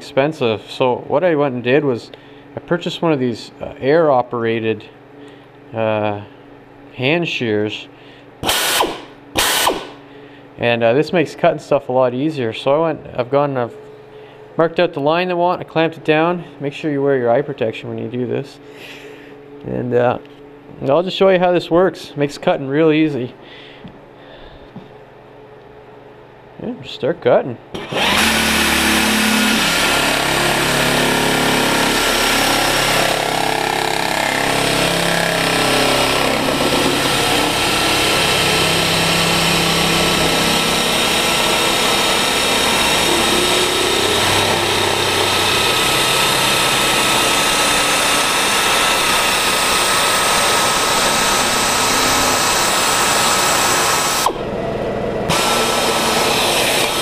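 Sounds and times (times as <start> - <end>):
air shear cutting sheet metal: 8.4 - 10.0, 27.8 - 54.5, 55.3 - 57.0.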